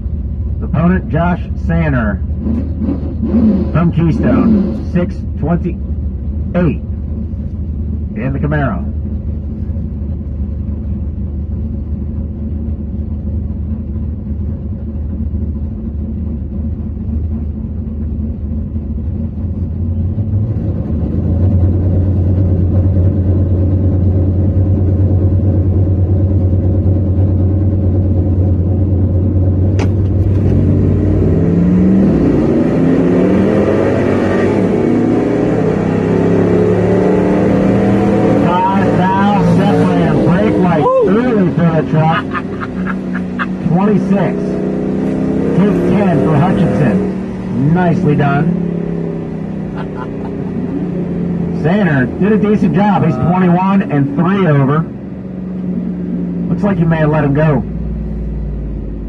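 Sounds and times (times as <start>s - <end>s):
engines idling with low rumble: 0.0s - 59.0s
engines revving hard accelerating: 0.6s - 5.8s, 29.4s - 59.0s.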